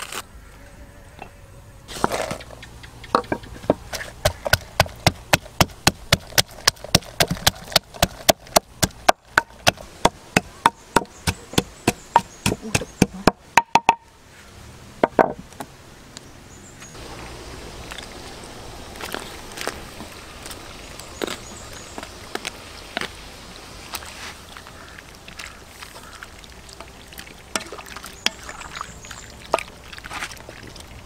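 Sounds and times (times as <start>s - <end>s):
wooden pestle pounding in mortar: 3.2s - 14.0s.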